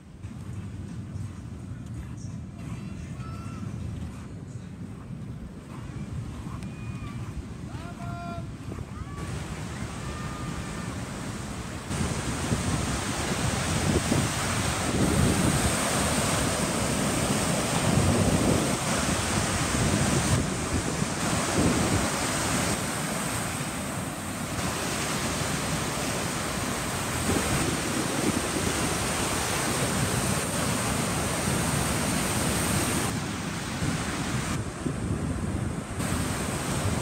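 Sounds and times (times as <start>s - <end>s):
wind buffeting microphone: 0.0s - 37.0s
surf breaking on sand: 7.6s - 37.0s.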